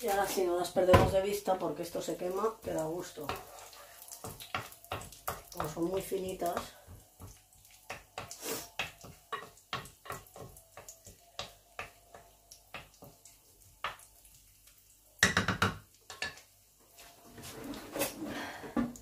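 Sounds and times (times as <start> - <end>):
wooden spoon stirring in earthenware pot: 0.0 - 19.0.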